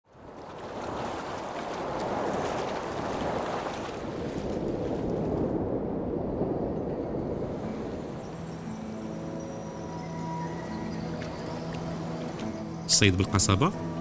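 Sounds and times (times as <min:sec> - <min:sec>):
wind: 0:00.0 - 0:14.0
sea surf rushing: 0:00.3 - 0:06.2.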